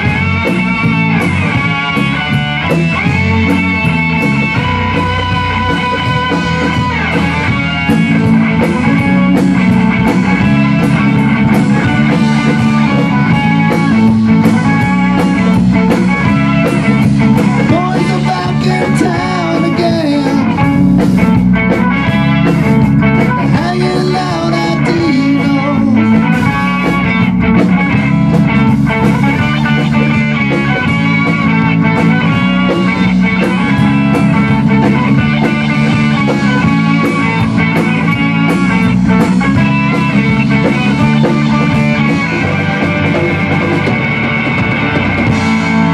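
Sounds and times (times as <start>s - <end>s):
rock band playing: 0.0s - 45.9s
man singing: 17.5s - 20.7s, 23.4s - 26.4s.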